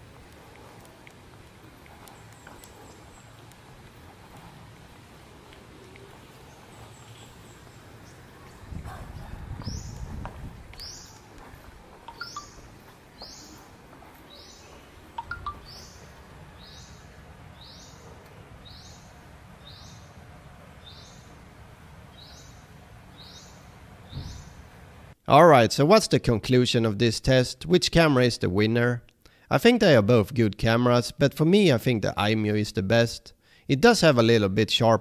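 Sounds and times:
faint background noise: 0:00.0 - 0:35.0
bird chirping: 0:01.8 - 0:04.5, 0:05.6 - 0:10.1, 0:10.8 - 0:20.2, 0:20.8 - 0:21.4, 0:22.1 - 0:24.7.

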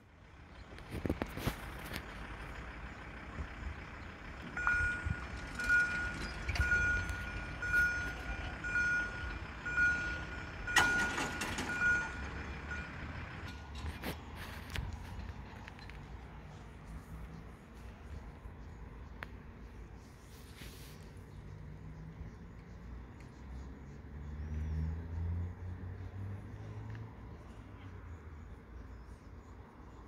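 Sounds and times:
level crossing warning beeps: 0:04.6 - 0:13.5.

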